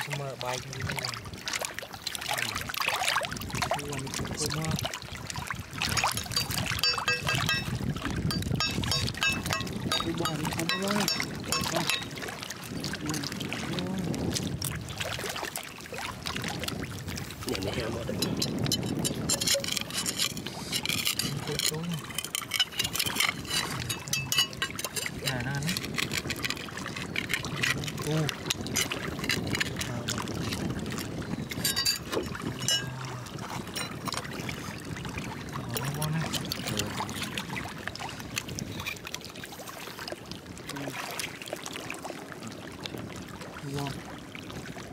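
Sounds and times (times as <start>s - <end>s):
wet watery mud sounds: 0.0s - 44.9s
oyster shell clicks and scrapes: 5.8s - 12.2s, 18.1s - 34.3s, 38.4s - 39.2s
metal blade scraping oyster shells: 18.8s - 25.2s.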